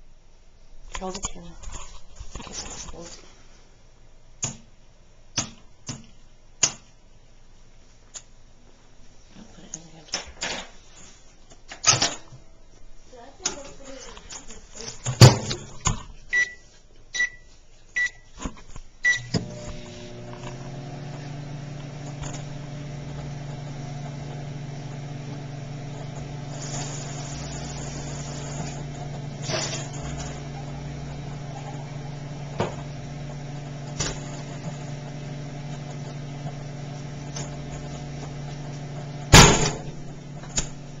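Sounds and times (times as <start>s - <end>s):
keypad beeps: 16.3s - 16.6s, 17.2s - 18.2s
microwave humming: 19.1s - 41.0s
egg bursting bang: 39.3s - 39.9s
microwave door clicking shut: 39.3s - 40.0s.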